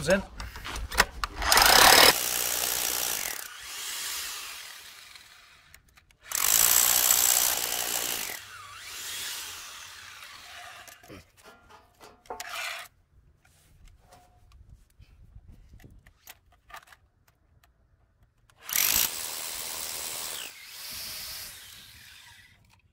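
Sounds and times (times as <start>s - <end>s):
hammer drill boring into concrete: 1.4s - 11.1s, 18.6s - 22.9s.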